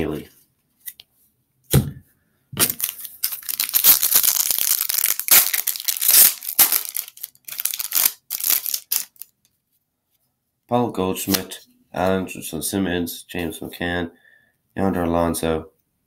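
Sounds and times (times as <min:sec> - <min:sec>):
foil wrapper crinkling and tearing: 0:02.6 - 0:09.4.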